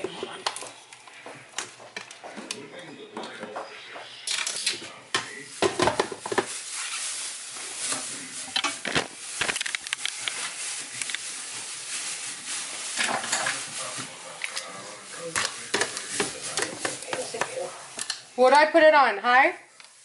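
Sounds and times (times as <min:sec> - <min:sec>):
steady hiss: 0:04.3 - 0:18.8.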